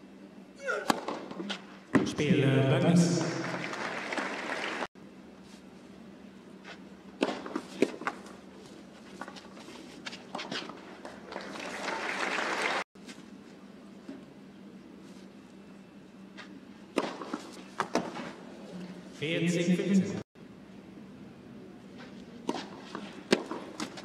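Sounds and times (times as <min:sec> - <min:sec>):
crowd applause: 0:03.1 - 0:04.9, 0:11.3 - 0:12.8.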